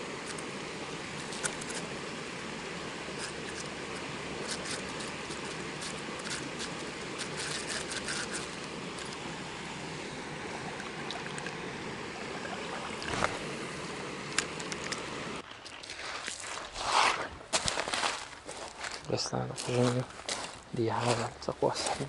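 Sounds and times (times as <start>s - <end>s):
river water rushing: 0.0s - 15.4s.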